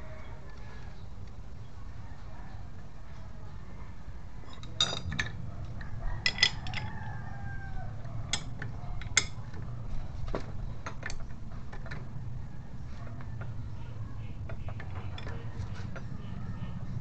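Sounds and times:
steel tools clinking on metal: 0:04.5 - 0:05.4, 0:06.2 - 0:07.0.

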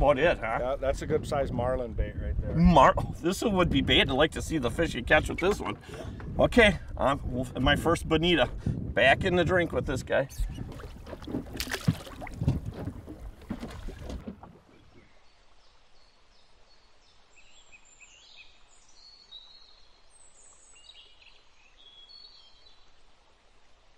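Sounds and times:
water splashing against a boat: 0:03.6 - 0:15.2.

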